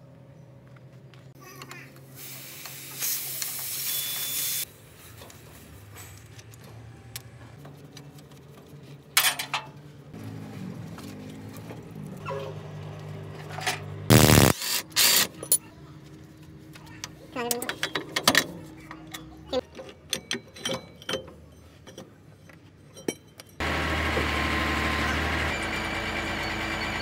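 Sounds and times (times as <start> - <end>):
gas hissing from hose fitting: 2.2 - 4.7
wrenches clicking and clanking: 17.4 - 23.6.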